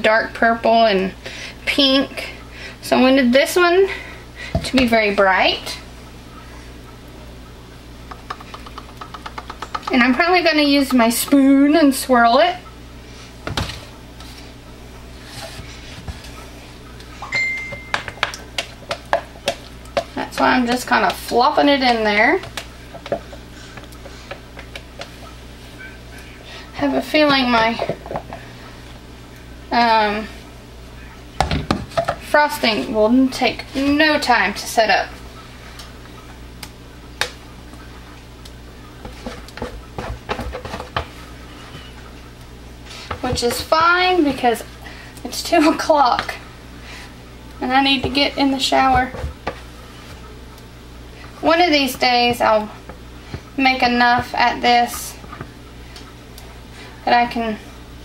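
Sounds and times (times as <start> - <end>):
plastic containers knocking: 8.1 - 10.3
high-pitched tone: 17.2 - 18.3.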